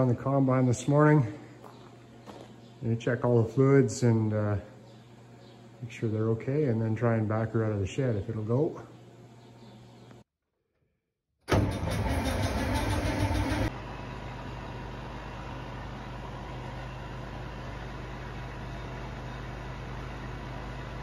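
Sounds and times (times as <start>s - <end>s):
engine starting roughly: 11.5s - 13.7s
engine running drone: 11.5s - 21.0s.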